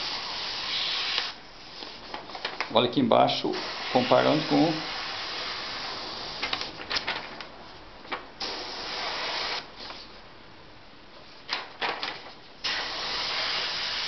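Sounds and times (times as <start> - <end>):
airbrush air hissing: 0.0 - 1.4, 3.4 - 6.6, 8.4 - 9.7, 12.6 - 14.0.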